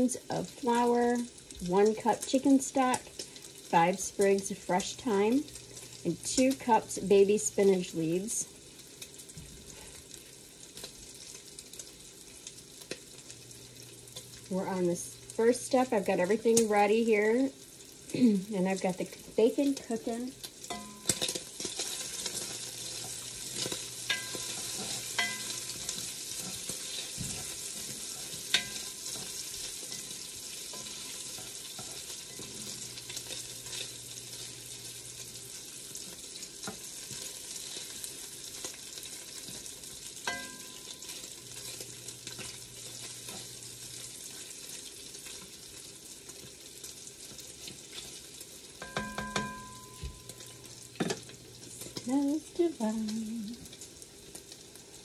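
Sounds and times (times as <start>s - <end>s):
bacon sizzling in a pot: 0.0s - 55.0s
spoon scraping against pot: 20.7s - 34.5s.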